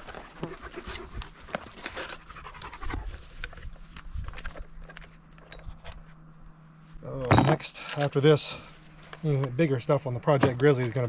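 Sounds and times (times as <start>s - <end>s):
dog panting: 0.0s - 1.6s.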